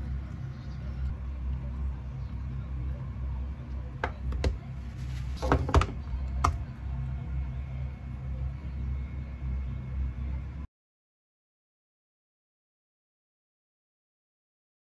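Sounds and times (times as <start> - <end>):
steady low hum: 0.0 - 10.7.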